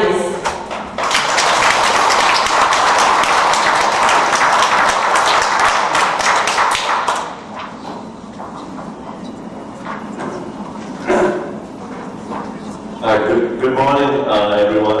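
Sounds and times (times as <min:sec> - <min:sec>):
audience applauding: 0:01.0 - 0:07.7.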